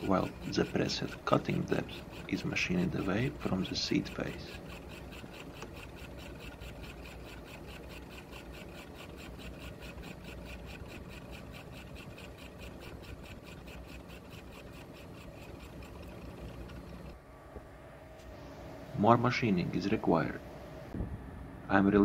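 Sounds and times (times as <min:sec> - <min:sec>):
cutter scraping metal: 0:00.0 - 0:17.2
low motor hum: 0:00.0 - 0:22.0.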